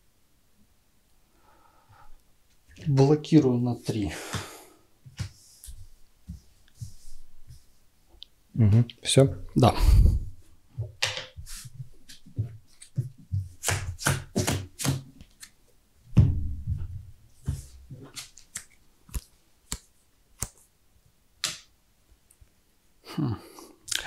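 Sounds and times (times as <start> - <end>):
cards slapping and sliding: 11.0 - 15.6, 17.4 - 20.7.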